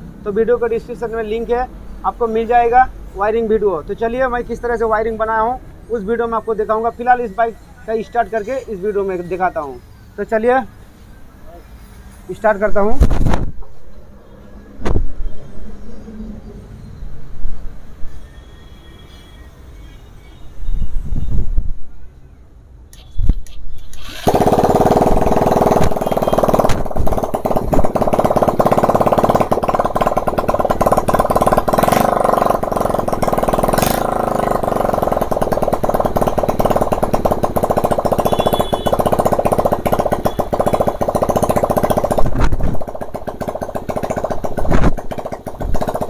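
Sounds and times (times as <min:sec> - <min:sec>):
motorcycle engine running: 0:24.0 - 0:46.0.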